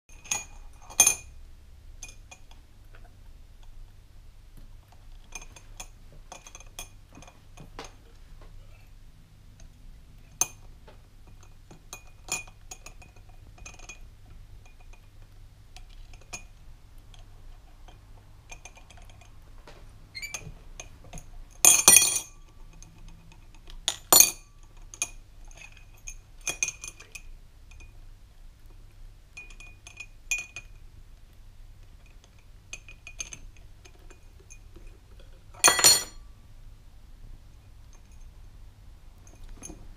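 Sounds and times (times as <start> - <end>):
metal spoon clinking on glass: 20.2 - 23.2, 29.4 - 30.8, 35.6 - 36.2.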